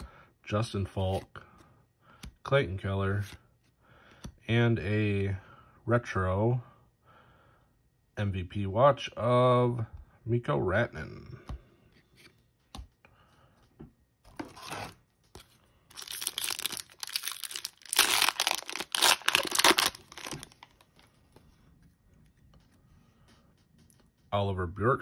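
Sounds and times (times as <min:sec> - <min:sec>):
wrapper tearing and crinkling: 0:15.9 - 0:20.9
wrapper rustling: 0:15.9 - 0:21.0.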